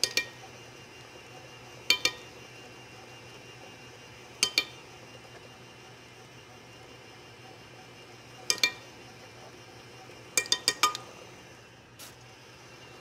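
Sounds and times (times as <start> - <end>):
stand mixer humming: 0.0 - 13.0
metal spoon clinking on bowl: 8.5 - 8.8, 10.4 - 11.0.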